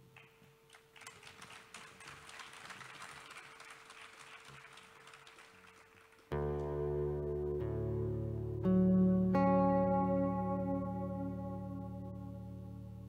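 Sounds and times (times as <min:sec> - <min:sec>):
electric guitar chord ringing: 0:06.3 - 0:13.0.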